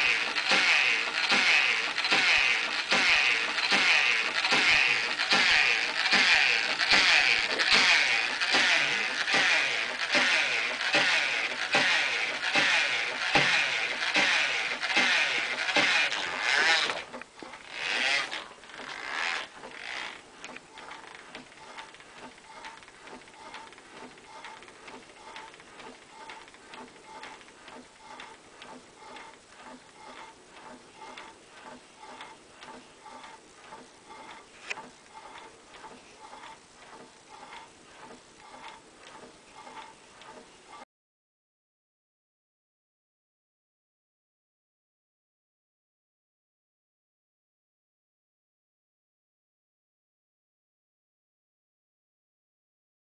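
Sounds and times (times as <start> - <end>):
loud mechanical noise: 0.0 - 29.4
wooden mechanism clacking: 0.0 - 40.8.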